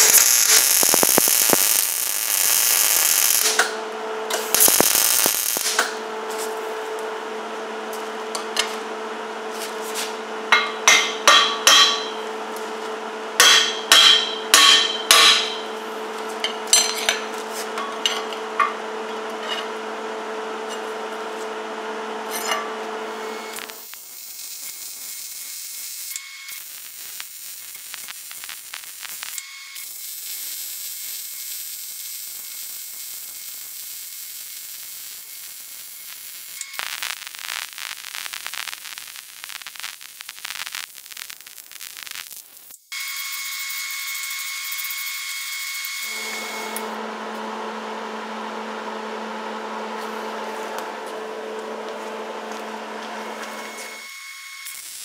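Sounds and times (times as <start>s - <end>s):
stick welding arc crackle: 0.0s - 7.2s, 9.7s - 19.1s, 22.3s - 47.0s, 50.0s - 55.0s
hammer striking steel: 10.5s - 12.3s, 13.4s - 15.8s, 16.4s - 18.8s
steady hum: 46.1s - 54.0s.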